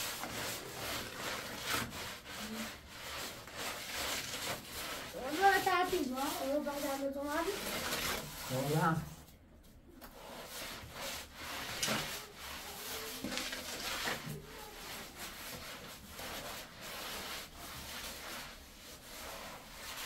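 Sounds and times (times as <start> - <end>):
rough rubbing strokes: 0.0 - 9.3, 10.1 - 20.0.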